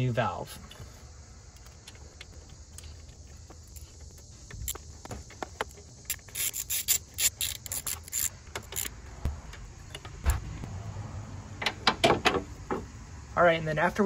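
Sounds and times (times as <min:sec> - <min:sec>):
socket ratchet clicking: 0:05.6 - 0:09.0.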